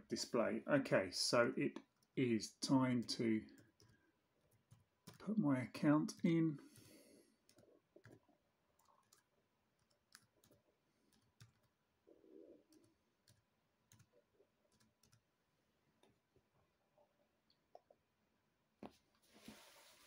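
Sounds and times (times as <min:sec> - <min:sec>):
laptop keys clicking: 0:03.0 - 0:05.3, 0:06.0 - 0:11.8, 0:12.7 - 0:15.3.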